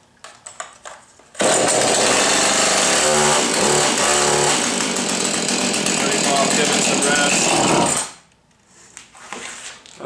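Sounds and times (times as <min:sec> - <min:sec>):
chainsaw running: 0:01.4 - 0:08.2.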